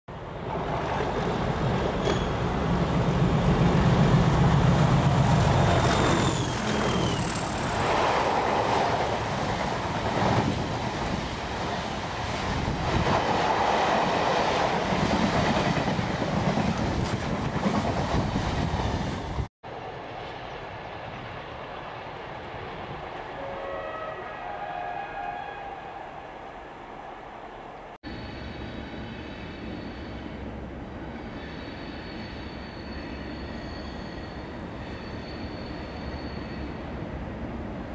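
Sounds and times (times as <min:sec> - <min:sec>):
diesel locomotive engine drone: 0:00.1 - 0:13.6
high wheel squeal: 0:05.5 - 0:08.3, 0:31.1 - 0:36.9.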